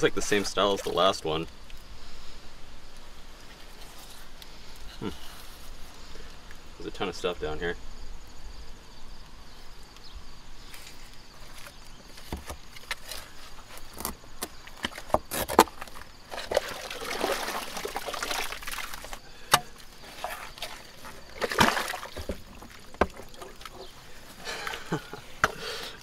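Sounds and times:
muddy water sloshing and splashing: 0:14.5 - 0:25.4.

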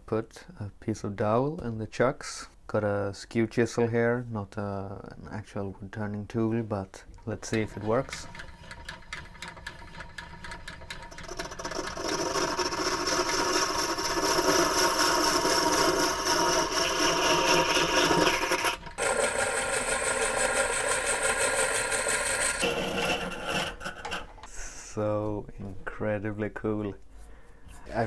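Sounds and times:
chisel scraping spinning wood: 0:07.4 - 0:24.5
treadle lathe ticking and rattling: 0:07.5 - 0:22.7.

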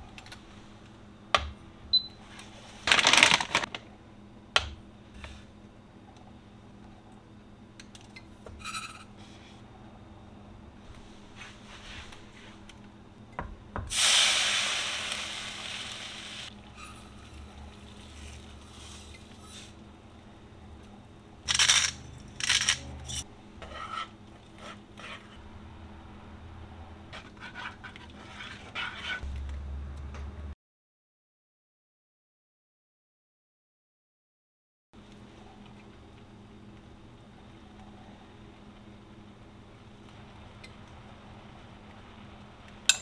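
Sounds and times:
grains pouring into pan: 0:13.9 - 0:19.0
water hissing in hot skillet: 0:13.9 - 0:19.7.

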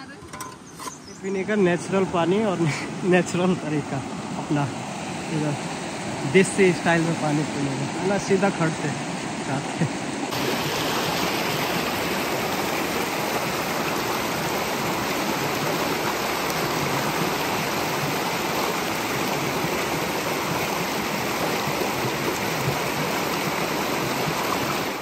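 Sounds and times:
stream water rushing: 0:00.0 - 0:25.0.

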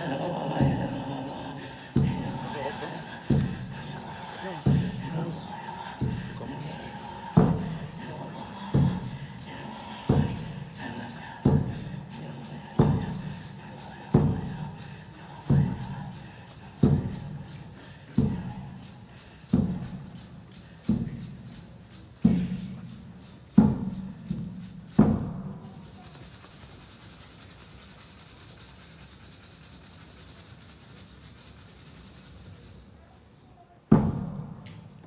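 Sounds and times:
shaken rattle: 0:00.0 - 0:33.9
deep drum struck slowly: 0:33.9 - 0:34.6.

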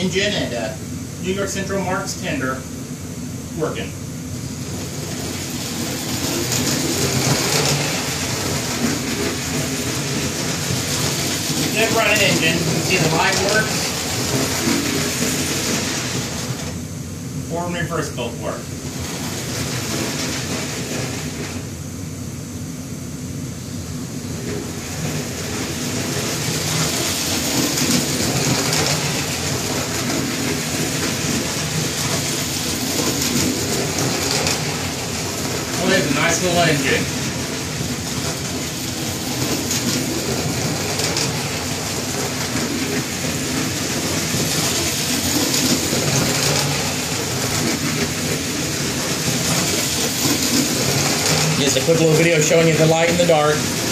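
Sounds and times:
toy train whirring on metal rails: 0:04.7 - 0:16.7, 0:24.4 - 0:53.9.

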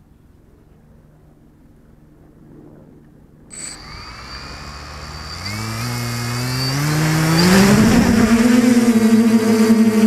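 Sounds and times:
quadcopter motors whining: 0:03.5 - 0:10.0.

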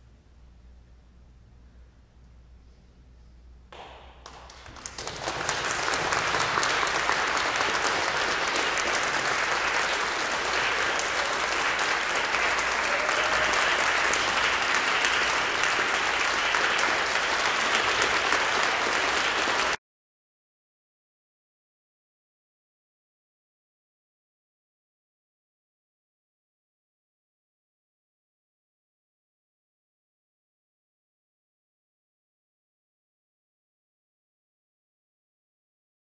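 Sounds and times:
audience applauding: 0:03.8 - 0:19.8.

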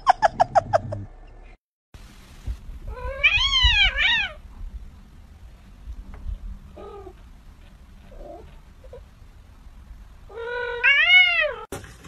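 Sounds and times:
cat meowing: 0:02.9 - 0:04.4, 0:10.3 - 0:11.7.

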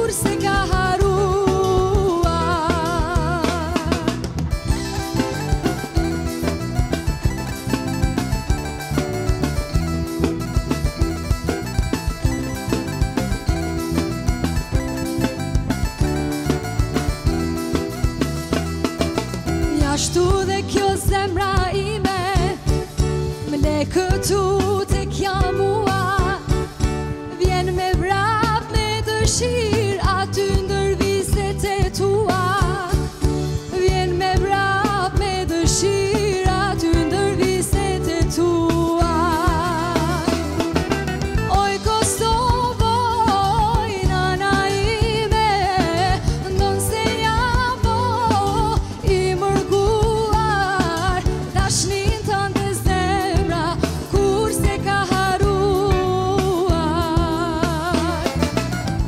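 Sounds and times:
woman singing with vibrato: 0:00.0 - 0:06.2, 0:19.6 - 0:26.7, 0:27.3 - 0:40.7, 0:41.5 - 0:58.4
drums: 0:00.0 - 0:59.0
keyboard: 0:00.0 - 0:59.0
live band playing: 0:00.0 - 0:59.0.

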